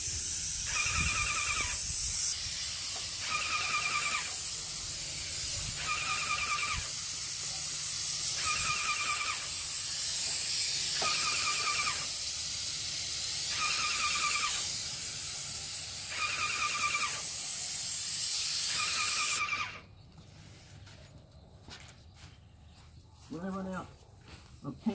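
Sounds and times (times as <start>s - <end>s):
paint sprayer hissing: 0.0s - 19.9s.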